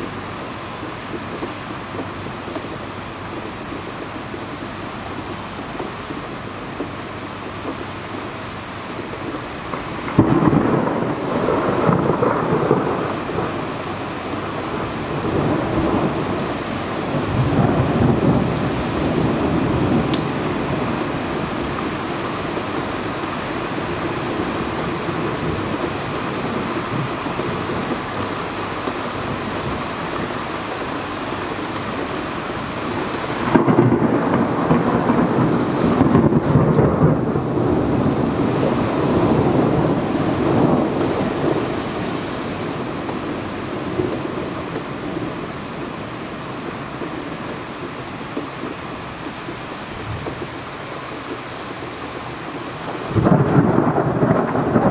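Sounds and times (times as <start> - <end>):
steady rain: 0.0 - 54.9
thunder rolling: 9.7 - 28.6, 32.0 - 45.4, 52.9 - 54.9.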